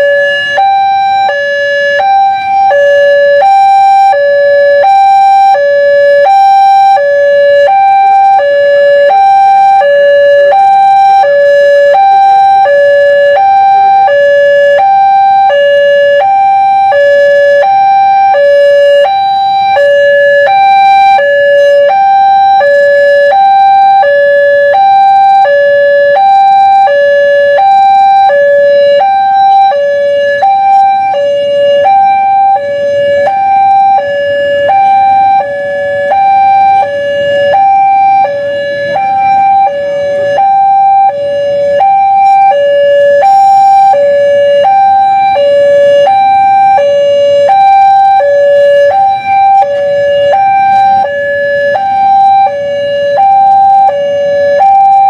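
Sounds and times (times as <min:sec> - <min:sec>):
two-tone crossing alarm: 0:00.0 - 0:55.0.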